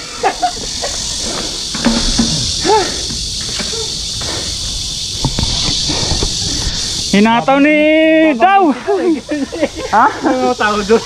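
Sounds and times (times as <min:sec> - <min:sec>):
bicycle rumble and wind: 0:00.0 - 0:07.2
high-pitched insect chorus: 0:00.0 - 0:11.0.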